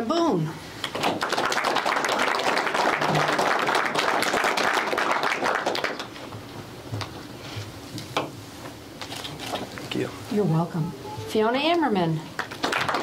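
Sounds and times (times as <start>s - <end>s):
audience applauding: 0.8s - 6.1s, 12.4s - 13.0s.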